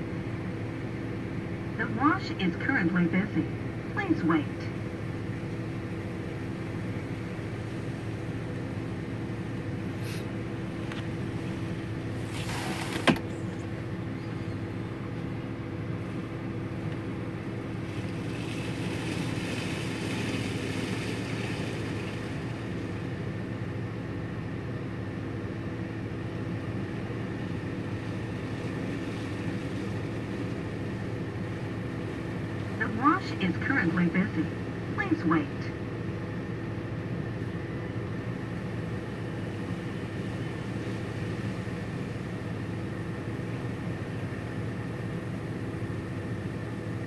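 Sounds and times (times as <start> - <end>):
car wash motor hum: 0.0 - 47.0
water spraying: 6.3 - 13.7, 16.0 - 23.8, 26.9 - 33.4, 39.2 - 44.5
brushes scrubbing car: 12.2 - 13.1.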